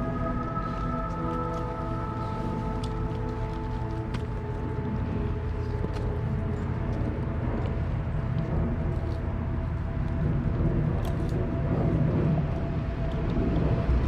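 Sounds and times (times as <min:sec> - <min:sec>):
faint hum: 0:00.0 - 0:14.0
low rumble: 0:00.0 - 0:14.0
dogs chewing bones cracking: 0:00.2 - 0:07.9.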